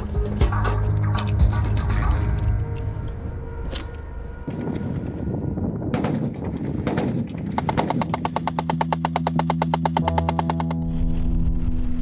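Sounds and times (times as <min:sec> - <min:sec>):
machine gun firing rapid burst: 0:07.6 - 0:10.8.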